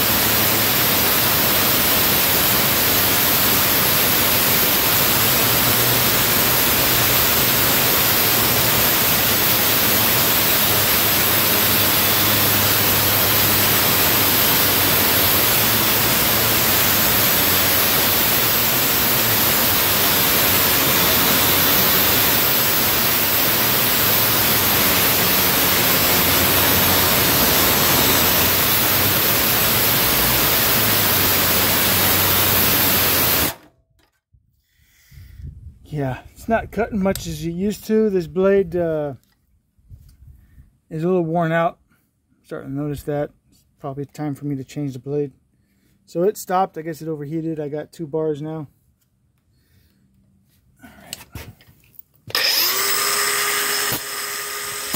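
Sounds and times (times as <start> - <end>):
angle grinder cutting steel: 0.0 - 33.7, 52.3 - 54.9.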